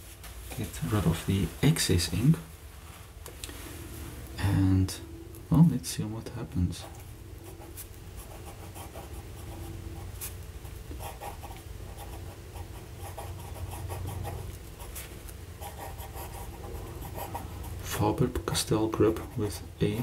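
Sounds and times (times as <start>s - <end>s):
steady low hum: 0.0s - 20.0s
fountain pen scratching on paper: 7.4s - 9.6s, 11.0s - 18.0s.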